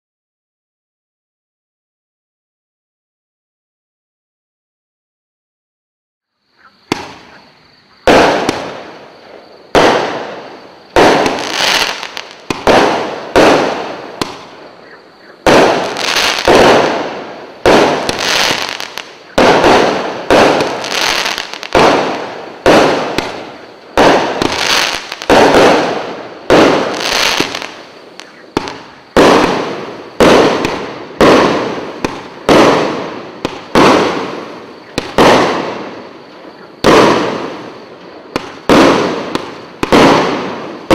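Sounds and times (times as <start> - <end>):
firework battery bangs: 6.9 - 7.3, 8.1 - 9.0, 9.7 - 14.7, 15.4 - 36.0, 36.8 - 40.9.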